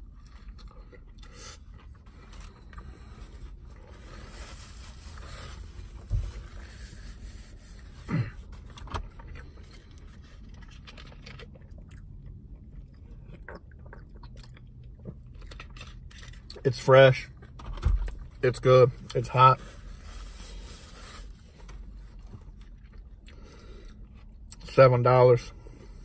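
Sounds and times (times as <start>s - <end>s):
quiet chewing: 0.0s - 3.6s, 8.6s - 16.6s, 21.5s - 24.6s
low rumble inside car: 0.0s - 26.0s.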